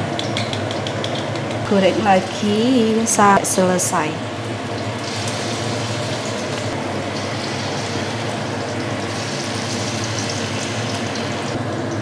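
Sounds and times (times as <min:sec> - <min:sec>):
low steady hum: 0:00.0 - 0:12.0
batter sizzling in hot oil: 0:04.4 - 0:11.6.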